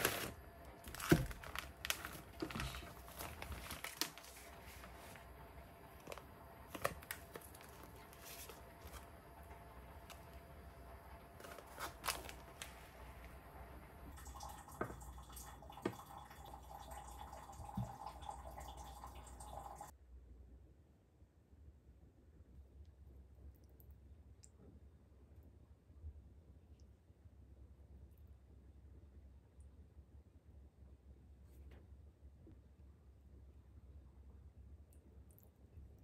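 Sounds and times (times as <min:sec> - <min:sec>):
plastic pouch crinkling: 0:00.0 - 0:05.2, 0:05.9 - 0:09.1, 0:11.4 - 0:12.8
wet squishing in a bag: 0:00.0 - 0:05.3, 0:05.9 - 0:09.1, 0:11.4 - 0:13.0
faint steady hum: 0:00.0 - 0:36.0.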